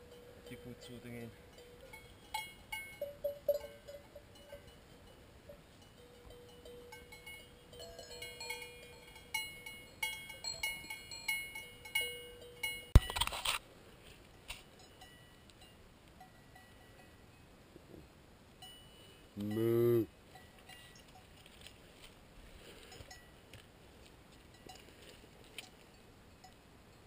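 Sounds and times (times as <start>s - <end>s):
cowbells clanking: 0.0s - 13.5s, 14.6s - 17.4s, 18.6s - 21.4s, 22.9s - 23.4s, 24.5s - 27.0s
brief rustle: 13.0s - 14.7s.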